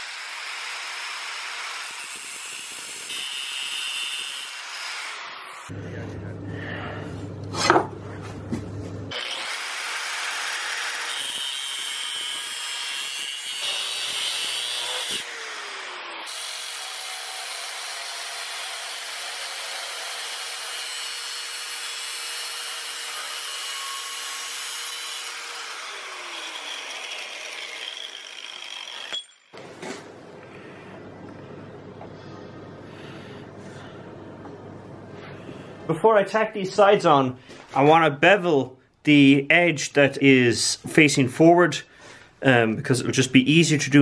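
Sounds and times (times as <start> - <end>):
electric grinder grinding steel: 0.0 - 5.8, 9.1 - 29.6.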